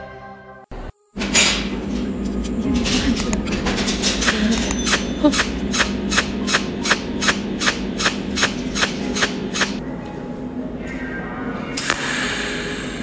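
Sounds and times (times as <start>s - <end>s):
welding arc snaps: 4.2s - 9.8s.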